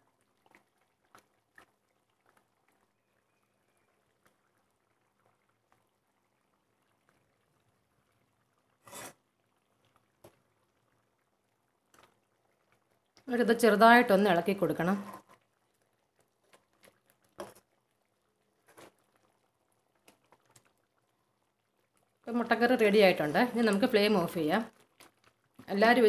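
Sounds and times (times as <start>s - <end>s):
ladle scraping pan: 8.8s - 9.2s.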